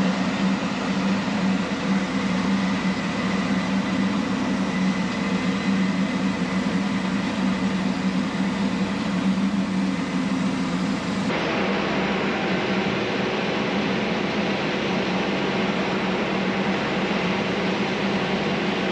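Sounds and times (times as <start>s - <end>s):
diesel machinery drone: 0.0s - 13.8s.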